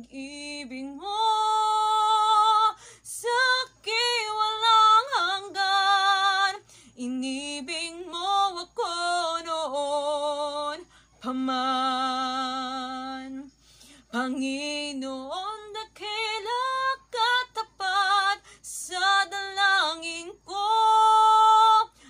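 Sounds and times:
woman singing: 0:00.0 - 0:22.0.

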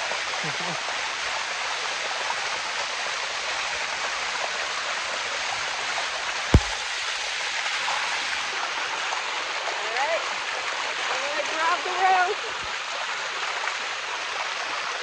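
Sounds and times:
waterfall rushing: 0:00.0 - 0:08.6
sharp thump: 0:06.5 - 0:06.9.

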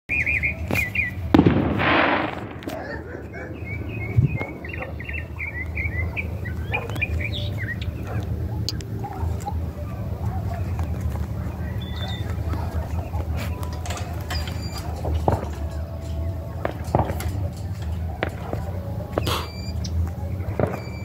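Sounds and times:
small birds chirping: 0:00.1 - 0:01.4, 0:02.7 - 0:21.0
steady low rumble: 0:00.2 - 0:21.0
sharp loud bang: 0:01.3 - 0:02.9.

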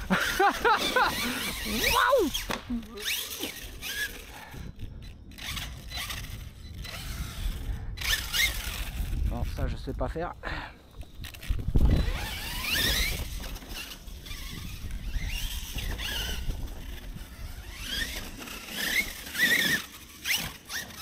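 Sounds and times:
electric motor whining: 0:00.0 - 0:09.4, 0:11.0 - 0:21.0.

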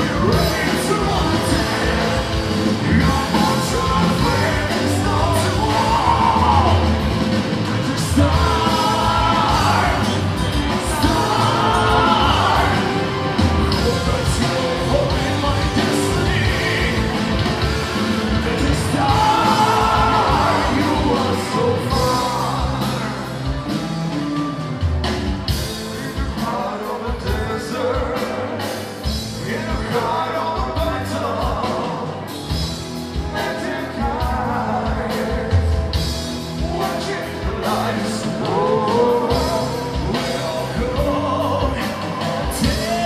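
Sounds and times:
person singing: 0:00.0 - 0:23.4, 0:36.6 - 0:43.0
metal band playing: 0:00.0 - 0:43.0.

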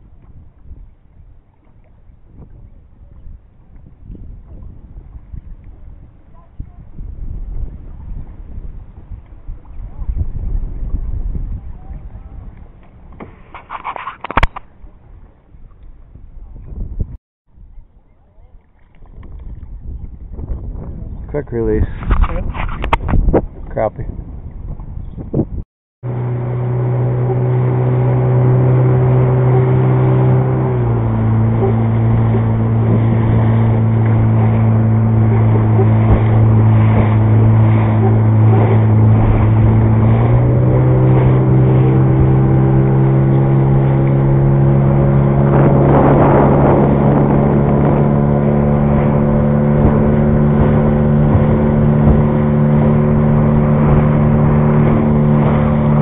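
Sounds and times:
outboard motor running: 0:26.0 - 0:56.0.

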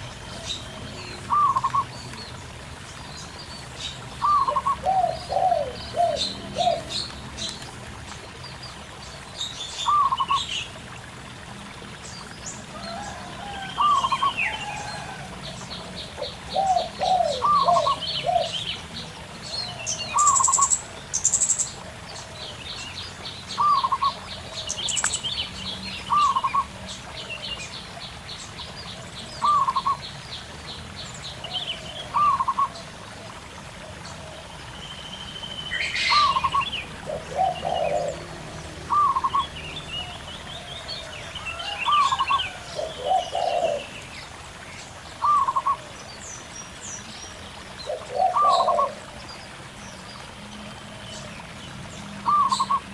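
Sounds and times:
doves cooing: 0:00.0 - 0:02.6, 0:04.1 - 0:07.2, 0:12.7 - 0:21.1, 0:31.4 - 0:34.7, 0:35.9 - 0:44.1, 0:45.2 - 0:46.0, 0:47.8 - 0:49.2, 0:52.2 - 0:52.9
bird chirps and trills: 0:00.0 - 0:10.7, 0:15.5 - 0:18.9, 0:19.5 - 0:32.9, 0:34.7 - 0:50.2, 0:51.0 - 0:52.9
stream trickling: 0:00.0 - 0:52.9.

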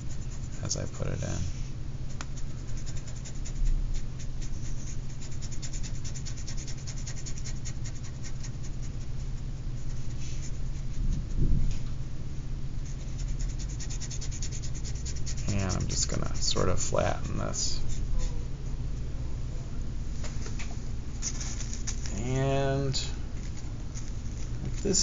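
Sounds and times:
steady low hum: 0:00.0 - 0:25.0
paintbrush scratching on surface: 0:02.4 - 0:11.3, 0:12.8 - 0:18.3, 0:23.0 - 0:25.0
soft thump: 0:11.4 - 0:11.9.

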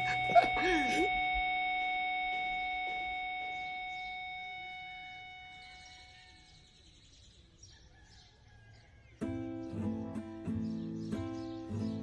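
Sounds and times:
ringing tone with overtones: 0:00.0 - 0:06.6
faint high chirps: 0:00.0 - 0:07.2.

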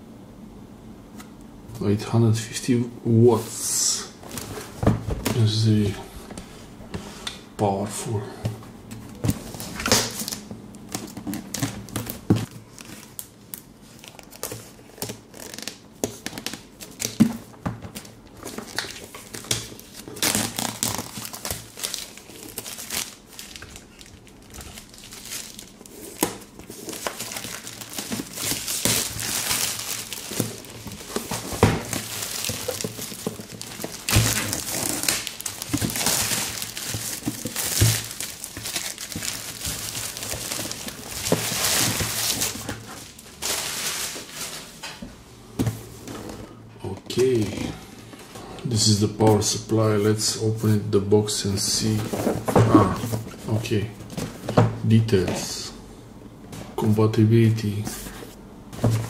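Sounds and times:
packaging rustling: 0:08.9 - 0:45.0.

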